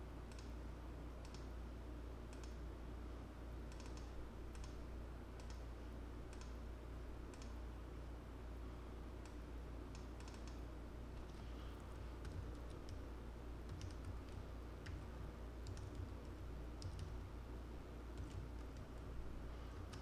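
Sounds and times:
low steady hum: 0:00.0 - 0:20.0
keyboard typing: 0:03.7 - 0:04.8, 0:09.2 - 0:10.6, 0:11.2 - 0:17.3, 0:18.1 - 0:19.1, 0:19.7 - 0:20.0.

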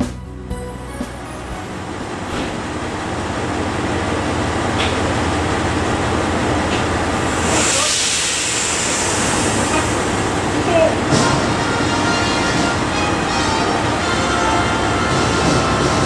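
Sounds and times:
diesel railcar engine idling: 0:00.1 - 0:15.0
high hiss: 0:07.1 - 0:11.0.

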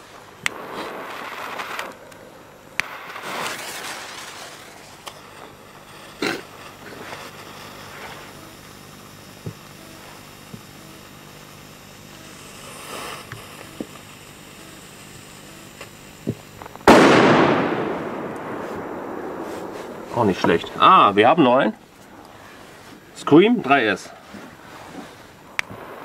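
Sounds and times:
firecracker bang: 0:02.8 - 0:08.4, 0:16.7 - 0:21.4.

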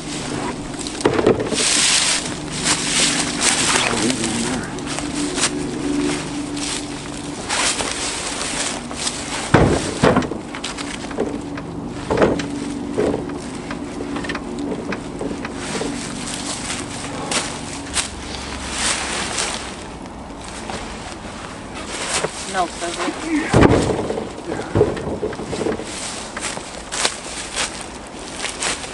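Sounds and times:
heavy thuds of firewood: 0:00.0 - 0:05.6, 0:07.5 - 0:11.4, 0:12.0 - 0:18.1, 0:21.8 - 0:27.8
steady low hum: 0:00.0 - 0:28.9.

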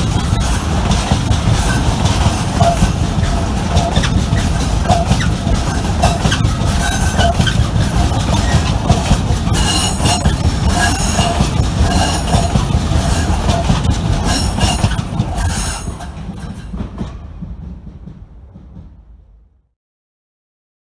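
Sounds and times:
train wheels clattering: 0:00.0 - 0:19.5
wheel squeal: 0:02.6 - 0:16.8.

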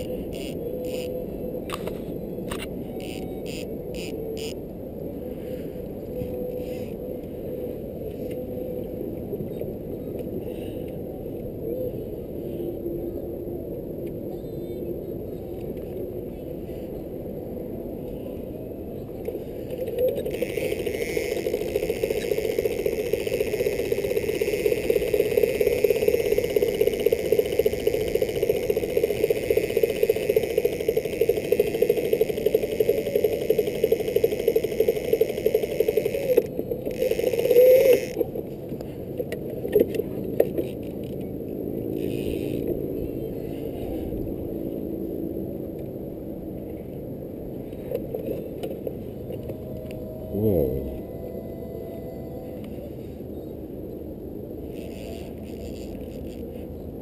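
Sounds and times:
loud whirring: 0:19.8 - 0:38.5, 0:48.9 - 0:52.7
boat motor running: 0:19.9 - 0:38.6, 0:48.7 - 0:52.7.

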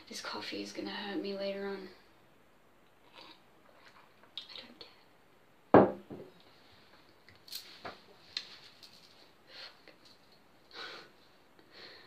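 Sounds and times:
faint breaths: 0:10.6 - 0:12.0.

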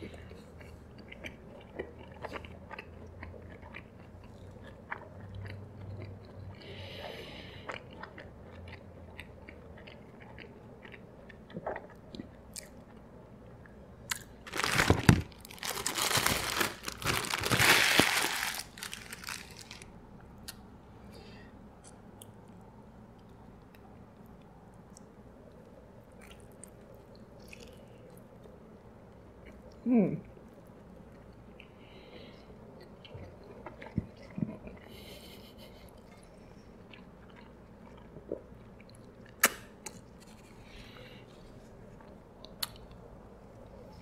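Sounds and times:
soft chewing: 0:00.0 - 0:14.4, 0:18.6 - 0:44.0
paper wrapper crinkling: 0:14.4 - 0:19.9.

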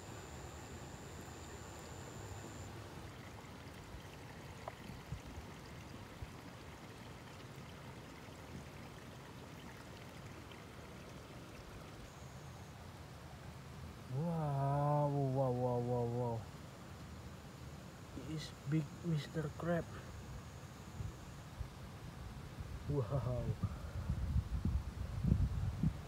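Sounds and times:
stream water running: 0:00.0 - 0:26.0.

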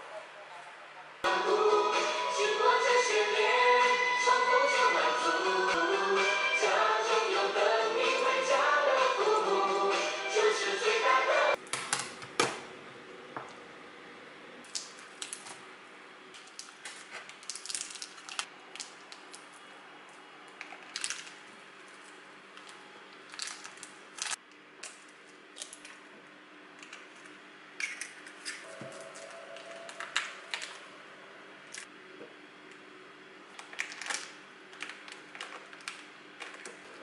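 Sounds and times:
plastic film crinkling: 0:16.4 - 0:19.6, 0:20.6 - 0:24.4.

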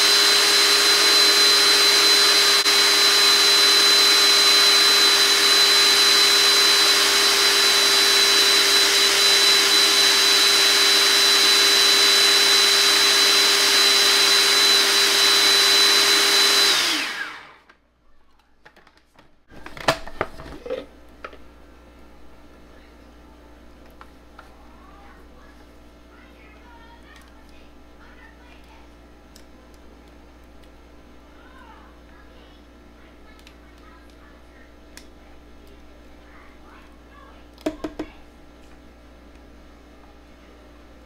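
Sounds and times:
food processor motor whine: 0:00.0 - 0:17.7.

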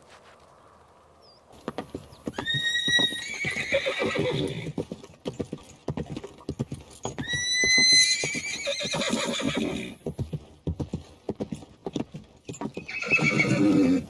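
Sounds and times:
horse whinnying: 0:02.3 - 0:04.8, 0:07.2 - 0:10.0, 0:12.8 - 0:14.0.

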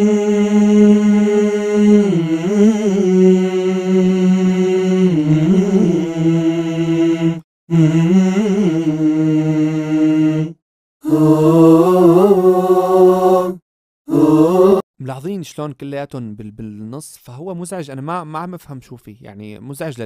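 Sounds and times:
layered a cappella singing: 0:00.0 - 0:14.8.

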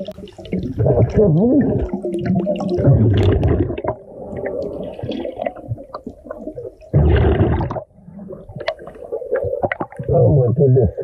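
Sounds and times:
gurgling rush of water and bubbles: 0:00.0 - 0:11.0
churning watery rumble: 0:06.9 - 0:08.0.

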